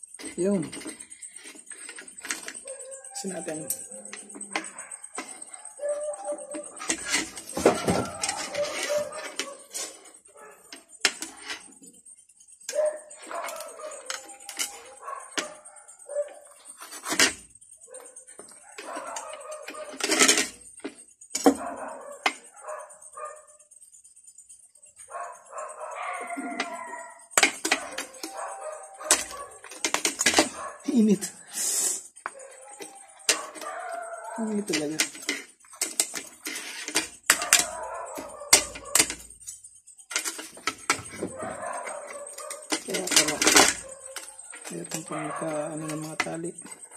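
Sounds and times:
dog barking: 0:02.5 - 0:06.8, 0:07.5 - 0:10.8, 0:12.7 - 0:16.6, 0:17.8 - 0:20.2, 0:21.4 - 0:23.7, 0:25.0 - 0:29.8, 0:30.4 - 0:31.4, 0:32.2 - 0:34.8, 0:37.3 - 0:39.3, 0:41.0 - 0:46.9
dog whining: 0:02.6 - 0:06.8, 0:25.2 - 0:29.6, 0:32.3 - 0:34.6.

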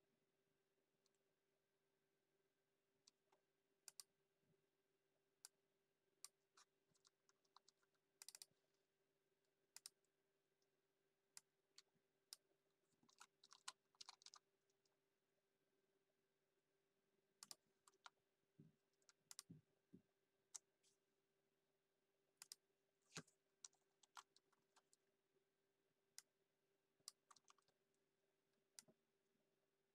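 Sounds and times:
keyboard keystrokes and clicks: 0:07.0 - 0:08.5, 0:17.4 - 0:18.2, 0:19.0 - 0:19.6.

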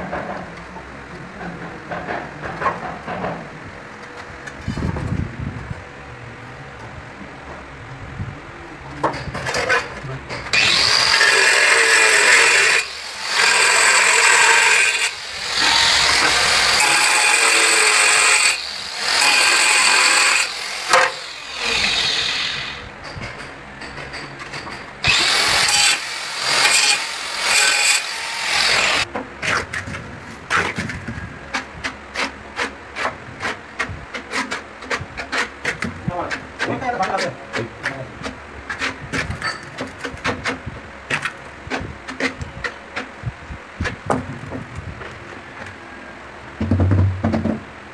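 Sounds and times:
angle grinder cutting tile: 0:10.5 - 0:22.8, 0:25.0 - 0:29.1.

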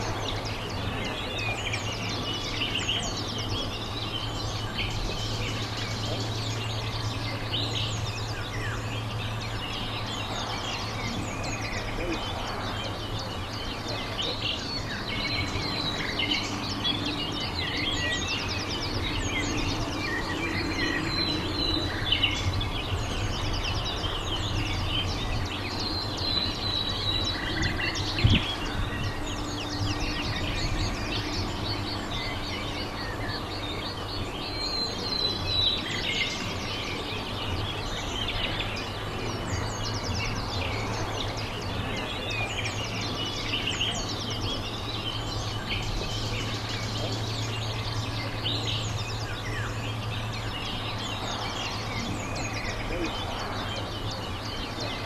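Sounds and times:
low background rumble: 0:00.0 - 0:55.0
small birds chirping: 0:00.0 - 0:55.0.

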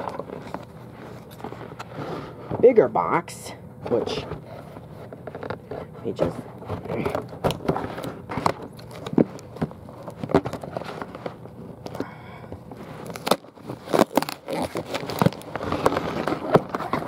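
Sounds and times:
cardboard box being opened: 0:04.0 - 0:12.0, 0:12.8 - 0:17.0.

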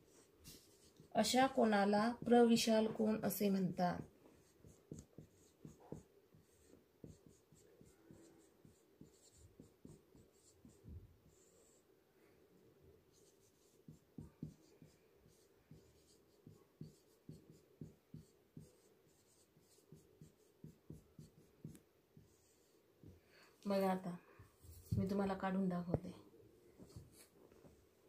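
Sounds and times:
marker writing on whiteboard: 0:00.0 - 0:11.8, 0:13.0 - 0:23.2, 0:26.8 - 0:27.3.

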